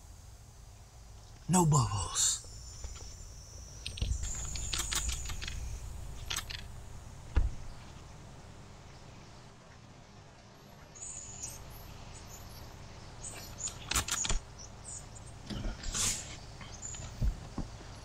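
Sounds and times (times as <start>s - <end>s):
faint high crackles and ticks: 2.4s - 8.4s, 9.6s - 18.0s.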